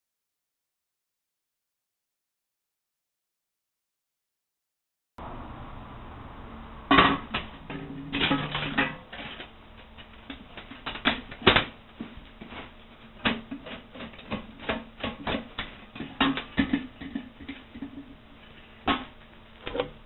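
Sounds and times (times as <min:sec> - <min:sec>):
steel pipe rattling against cylinder: 0:06.9 - 0:18.2.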